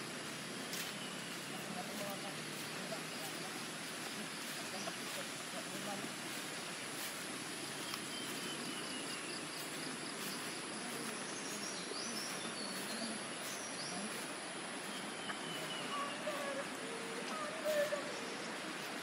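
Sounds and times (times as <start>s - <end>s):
steady hiss of river: 0.0s - 19.0s
faint bird chirps: 7.8s - 19.0s.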